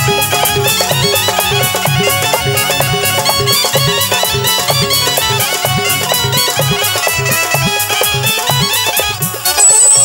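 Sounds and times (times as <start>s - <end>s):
drum beat: 0.0s - 9.6s
fast melodic lead line: 0.0s - 10.0s.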